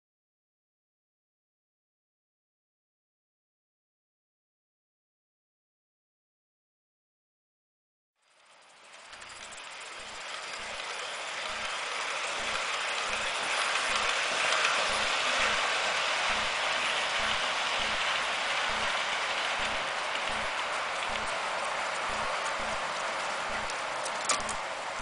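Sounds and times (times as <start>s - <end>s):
model steam train hissing: 9.0s - 25.0s.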